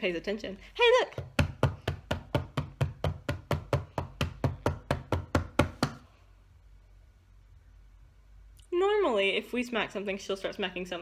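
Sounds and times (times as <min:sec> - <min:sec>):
hand slapping a tabletop: 0:01.1 - 0:06.1.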